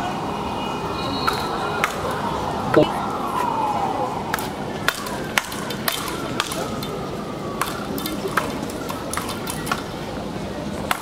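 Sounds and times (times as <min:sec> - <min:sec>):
rackets hitting ball: 0:01.2 - 0:02.8, 0:04.3 - 0:07.0, 0:07.6 - 0:09.9.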